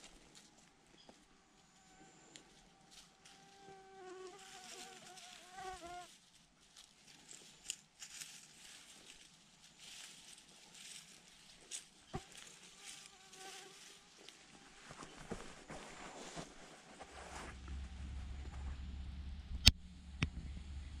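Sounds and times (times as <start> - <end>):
rustles in dry grass: 1.7 - 18.8
flying insect buzzing: 3.4 - 6.1, 12.1 - 14.3.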